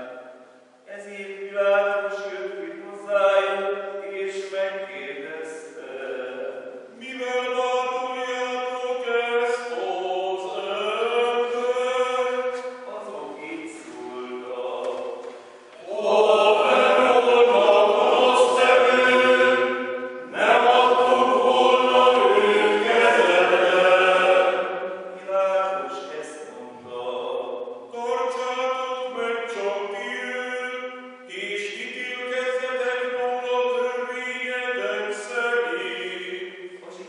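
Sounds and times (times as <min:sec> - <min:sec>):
men's choir chanting: 0:15.8 - 0:27.3.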